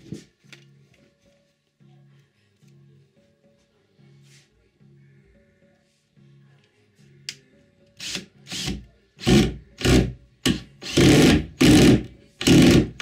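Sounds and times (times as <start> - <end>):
cordless drill running in bursts: 10.8 - 12.9.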